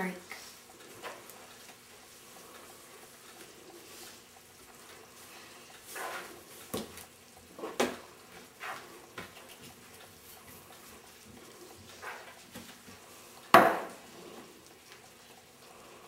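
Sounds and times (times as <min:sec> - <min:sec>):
containers set down on counter: 0:13.6 - 0:14.0.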